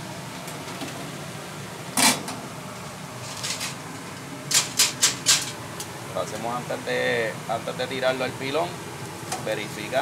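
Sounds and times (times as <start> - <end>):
steady background hum: 0.0 - 10.0.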